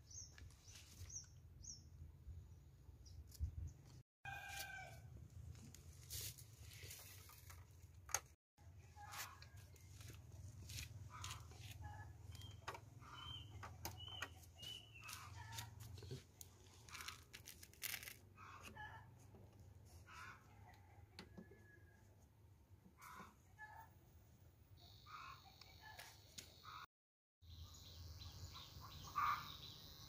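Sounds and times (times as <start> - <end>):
bird chirps: 12.2 - 15.5, 27.4 - 30.0.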